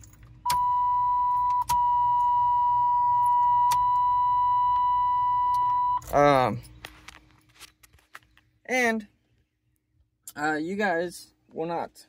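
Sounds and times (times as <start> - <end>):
dashboard warning buzzer: 0.5 - 6.0.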